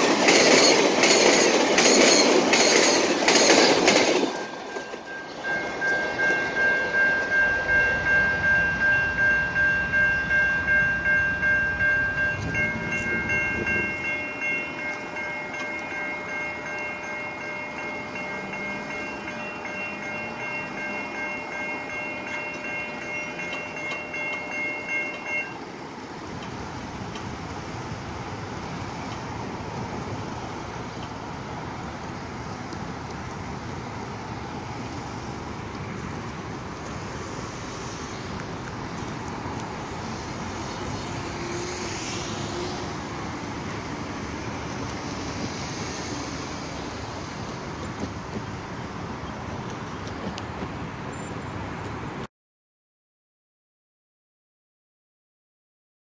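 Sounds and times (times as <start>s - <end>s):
road traffic: 0.0s - 52.3s
train rumbling over rails: 0.0s - 52.3s
wind: 0.0s - 52.3s
level crossing bell ringing: 4.2s - 25.6s.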